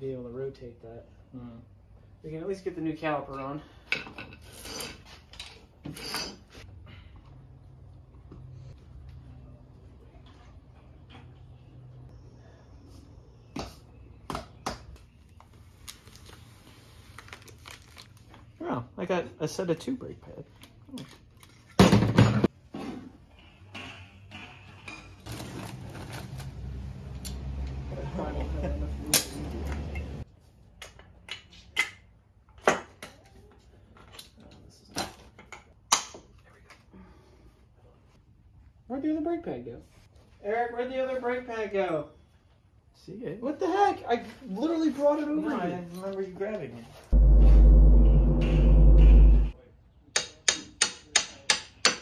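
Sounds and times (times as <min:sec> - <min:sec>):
steady low hum: 0:47.1 - 0:49.6.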